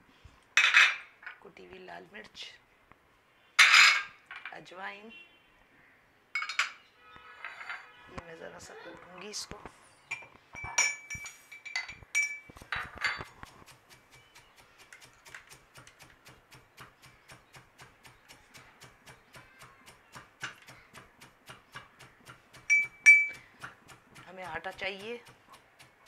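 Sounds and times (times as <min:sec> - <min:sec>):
ringing metal clinks: 0:10.1 - 0:13.2, 0:22.7 - 0:23.4
pestle pounding in steel mortar: 0:12.6 - 0:26.0.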